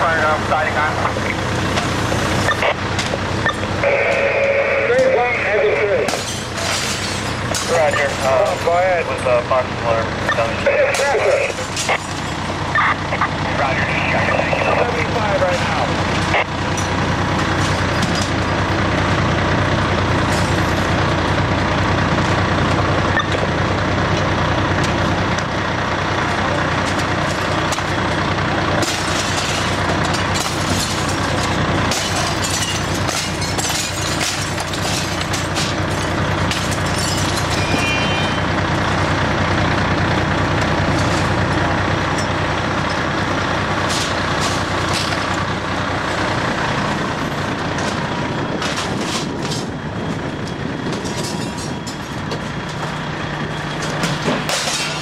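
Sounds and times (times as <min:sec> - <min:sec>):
diesel engine at high revs: 0:00.0 - 0:55.0
sharp knocks and clatter: 0:28.7 - 0:37.9, 0:53.7 - 0:55.0.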